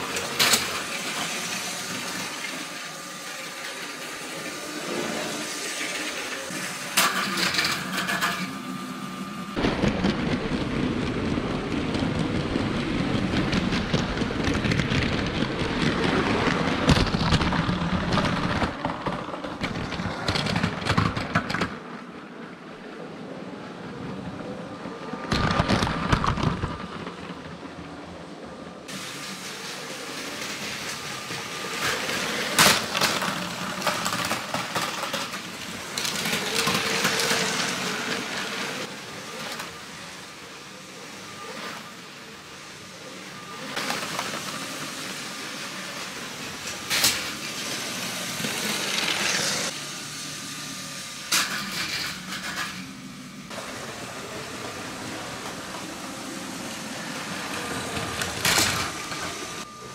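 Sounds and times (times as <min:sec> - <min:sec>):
plastic wheels clattering on track: 0:00.0 - 0:02.4, 0:09.6 - 0:22.1, 0:25.2 - 0:27.6, 0:30.8 - 0:39.8, 0:57.6 - 0:59.6
toy train motors whirring: 0:00.0 - 0:08.6, 0:28.9 - 0:59.9.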